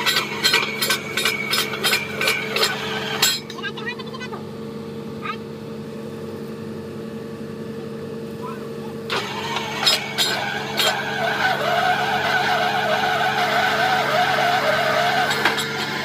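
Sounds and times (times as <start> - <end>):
sharp metallic knocks: 0.0 - 3.6
drilling rig engine running: 0.0 - 16.0.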